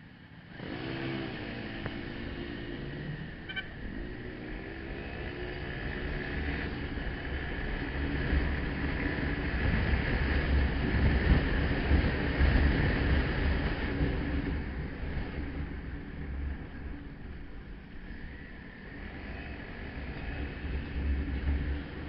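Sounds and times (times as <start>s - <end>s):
motorcycle engine running: 0.3s - 22.0s.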